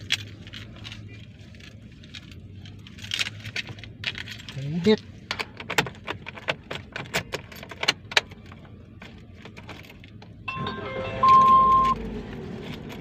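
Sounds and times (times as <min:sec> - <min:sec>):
car engine humming: 0:00.0 - 0:13.0
car keys jangling: 0:00.0 - 0:13.0
car engine starting: 0:05.4 - 0:13.0.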